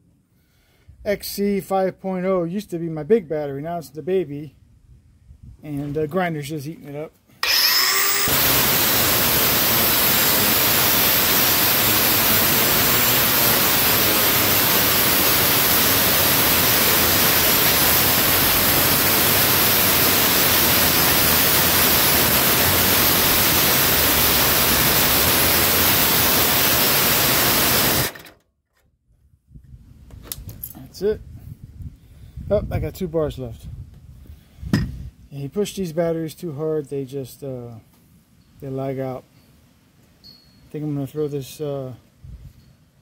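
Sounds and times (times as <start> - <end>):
angle grinder cutting steel: 7.4 - 28.4.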